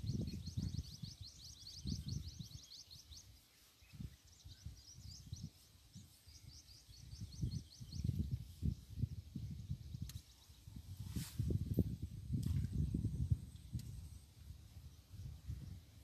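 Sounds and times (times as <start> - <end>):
bird chirping trill: 0.0 - 8.9
wind buffeting microphone: 0.0 - 16.0.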